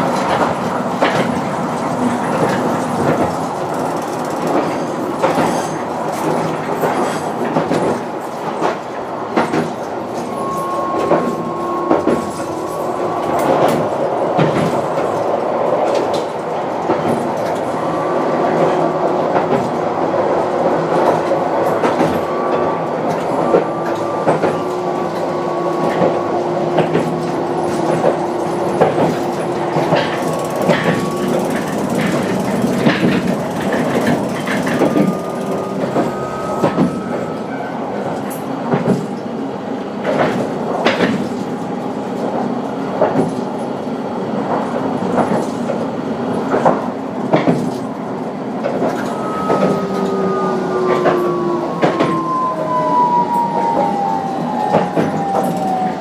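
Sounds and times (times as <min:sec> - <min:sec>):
wheels clicking over rail joints: 0:00.0 - 0:10.4, 0:23.0 - 0:37.3
tram rumble: 0:00.0 - 0:56.0.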